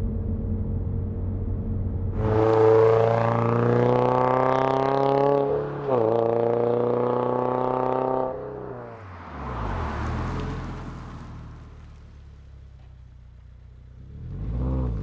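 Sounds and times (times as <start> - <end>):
low exhaust rumble: 0.0 - 3.3
car engine accelerating hard: 0.3 - 12.9, 13.9 - 15.0.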